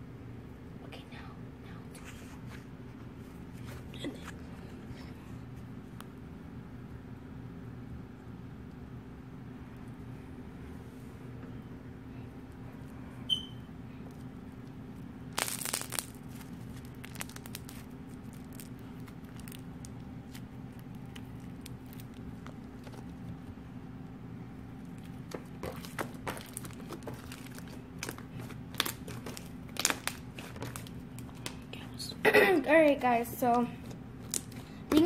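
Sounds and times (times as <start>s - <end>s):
steady low hum: 0.0s - 35.0s
short high squeak: 13.3s - 13.6s
slime crackling and popping: 14.6s - 23.6s, 24.8s - 31.7s, 34.2s - 35.0s.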